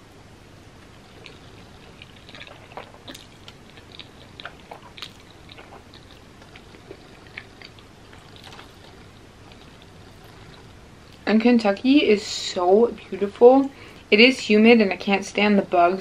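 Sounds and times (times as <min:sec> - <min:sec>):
chewing with smacks and clicks: 0:00.8 - 0:11.9
wet slurping of noodles: 0:00.9 - 0:11.2.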